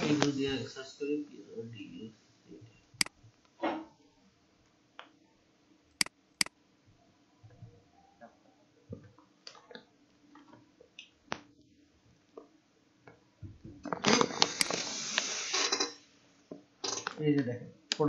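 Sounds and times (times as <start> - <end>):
crackling rustling near microphone: 0.0 - 1.0, 13.8 - 16.0
keyboard and mouse clicks: 5.9 - 6.5.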